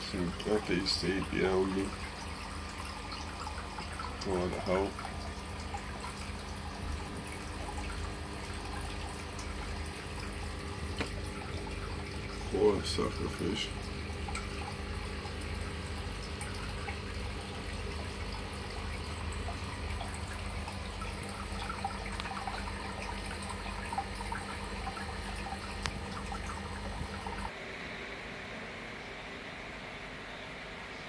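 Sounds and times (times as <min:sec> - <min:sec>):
water trickling and bubbling: 0:00.0 - 0:27.6
pump hum: 0:00.0 - 0:31.0.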